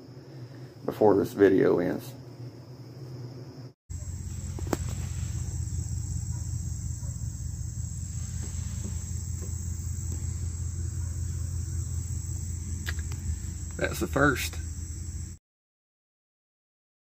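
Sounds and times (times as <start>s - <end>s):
crickets chirping: 0.0s - 15.4s
steady low rumble: 3.9s - 15.4s.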